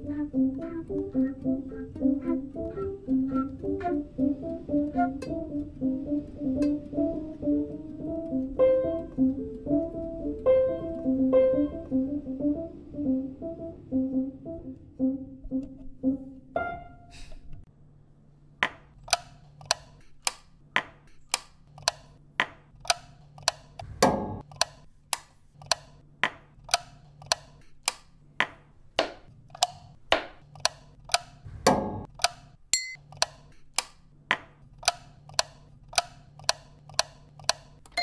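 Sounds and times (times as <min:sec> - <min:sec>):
piano notes: 0:00.0 - 0:17.4.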